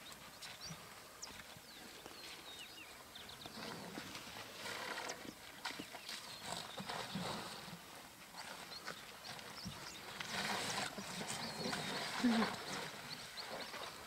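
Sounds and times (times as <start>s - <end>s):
birds chirping and whistling: 0.0s - 4.1s, 8.7s - 14.0s
elephants rustling and knocking: 3.3s - 14.0s.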